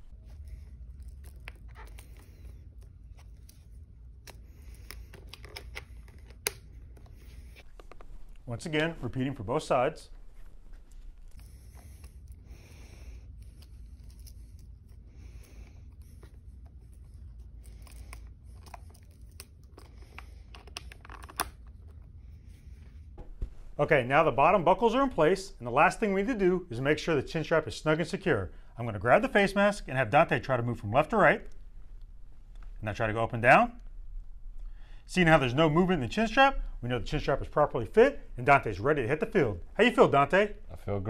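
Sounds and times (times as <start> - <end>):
fingers handling chin strap: 0.0 - 8.5, 10.2 - 23.5
strap rustling and scraping: 0.0 - 9.5
low steady hum: 0.0 - 41.0.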